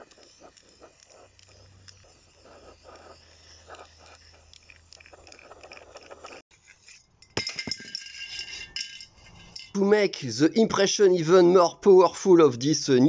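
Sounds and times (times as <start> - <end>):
spray paint can hissing: 0.0 - 6.4.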